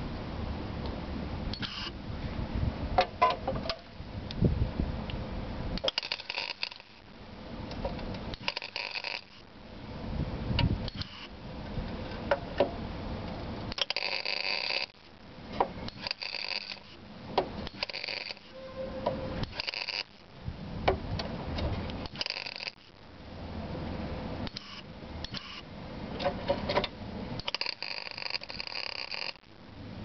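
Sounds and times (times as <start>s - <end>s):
welding arc crackling: 5.8s - 7.1s, 8.3s - 9.5s, 13.7s - 15.2s, 15.9s - 17.1s, 17.7s - 18.5s, 19.4s - 20.4s, 22.1s - 23.0s, 27.4s - 29.5s.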